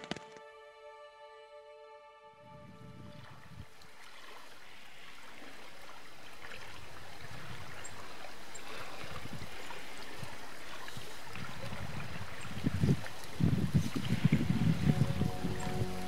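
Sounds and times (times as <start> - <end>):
low wind rumbles: 2.4 - 3.7, 11.4 - 16.0
stream water running: 2.8 - 16.0.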